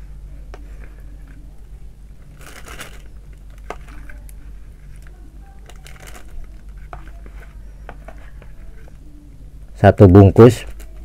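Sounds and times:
plastic bag crinkling: 2.2s - 7.7s.

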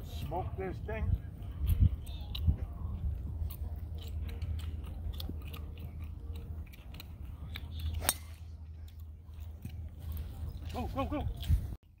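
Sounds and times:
low steady rumble: 0.0s - 11.8s
golf club striking ball: 8.0s - 8.6s.

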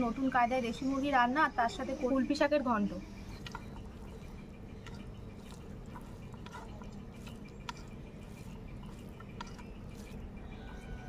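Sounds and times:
low steady background noise: 0.0s - 11.0s
fingers squishing rice: 3.1s - 11.0s.

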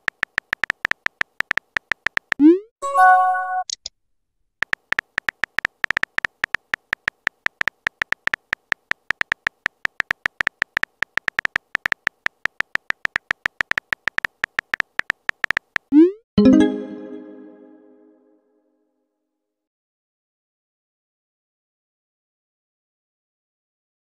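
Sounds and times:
phone keyboard key clicks: 0.0s - 2.4s, 4.6s - 15.9s.

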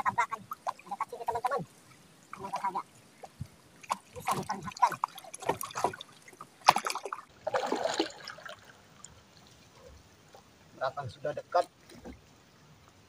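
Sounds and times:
water trickling and splashing: 0.0s - 13.0s
heavy splash: 3.8s - 8.7s.

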